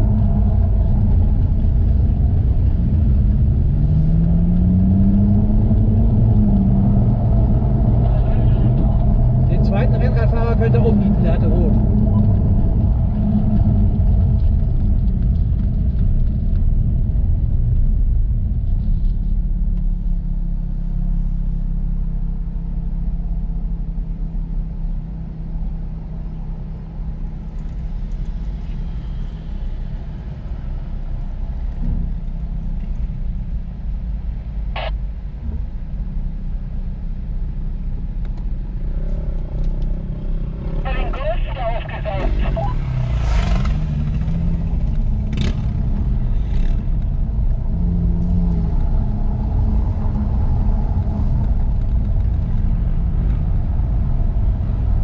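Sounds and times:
car engine low note: 0.0s - 55.0s.

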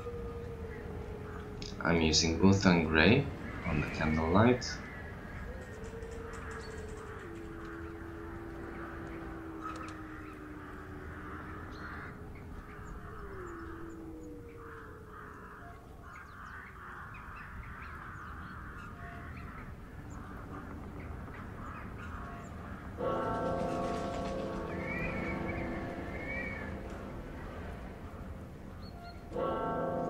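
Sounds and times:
low drone sliding in pitch: 0.0s - 15.8s, 22.7s - 30.0s
crow cawing: 3.2s - 28.2s.

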